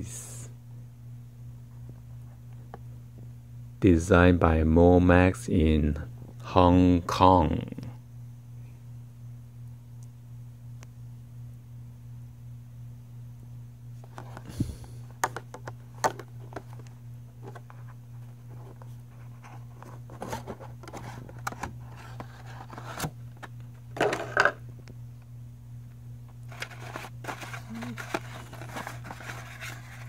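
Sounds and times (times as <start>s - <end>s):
steady low hum: 0.0s - 30.0s
cardboard scraping and rustling: 17.4s - 23.2s, 26.5s - 30.0s.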